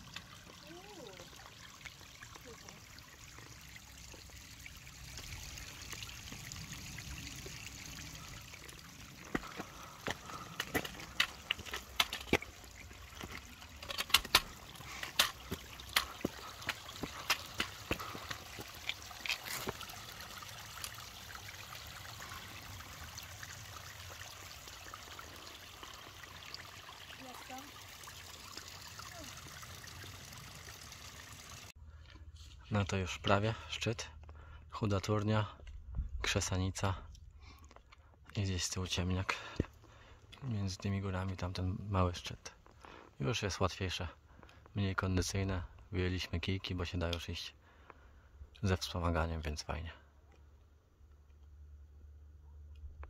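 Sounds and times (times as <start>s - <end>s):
footsteps clicking on rocks: 9.3s - 19.8s.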